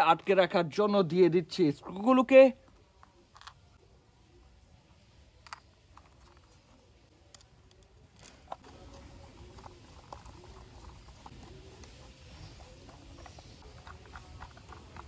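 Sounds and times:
plastic toy parts clicking: 0:05.4 - 0:06.5.

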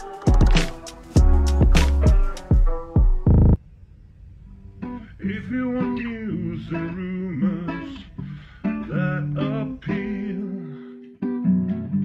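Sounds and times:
person singing: 0:00.0 - 0:02.6, 0:04.9 - 0:12.0
acoustic guitar: 0:04.8 - 0:12.0.

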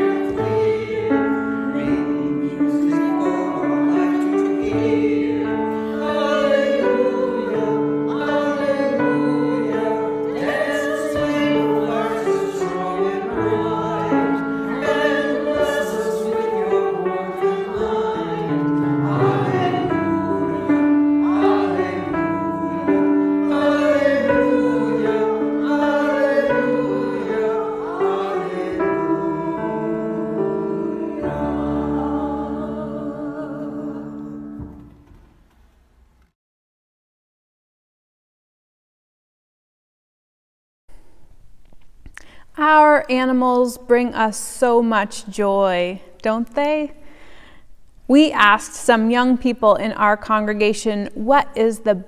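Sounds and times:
group of voices singing: 0:00.0 - 0:34.6.

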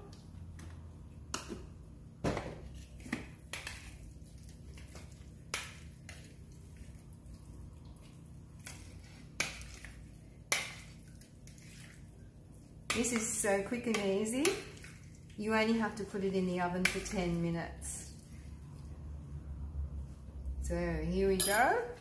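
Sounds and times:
soft mixing sounds: 0:00.0 - 0:22.0
spoon clinking on glass bowl: 0:21.4 - 0:21.8.

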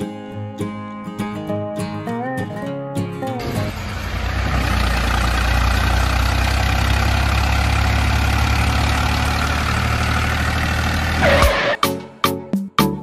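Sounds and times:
model tractor engine drone: 0:03.4 - 0:11.8.

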